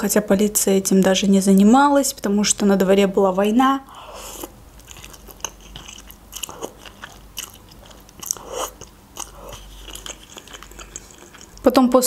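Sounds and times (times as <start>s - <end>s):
person chewing: 3.3s - 11.7s
wet mouth clicks: 4.4s - 11.6s
person slurping noodles: 8.2s - 11.6s.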